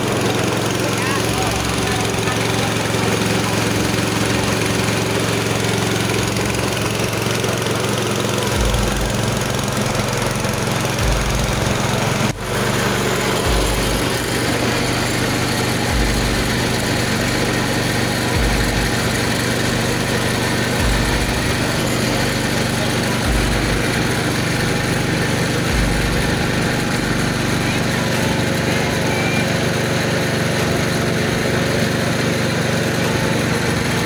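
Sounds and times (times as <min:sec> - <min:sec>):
rice mill engine running: 0:00.0 - 0:34.0
low repeating pulse: 0:08.4 - 0:29.6.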